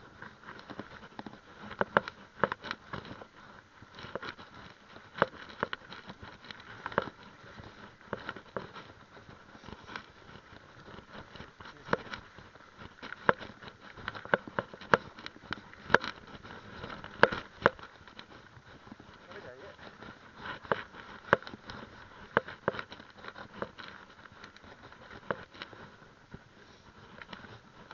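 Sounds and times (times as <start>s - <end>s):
tyres rolling on dirt: 0.0s - 27.9s.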